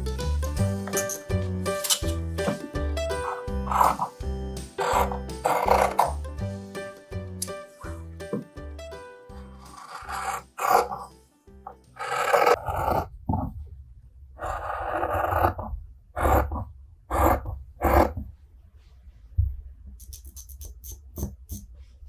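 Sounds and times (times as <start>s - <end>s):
shears cutting fabric: 4.8s - 6.2s
marker scratching on cloth: 9.6s - 11.0s.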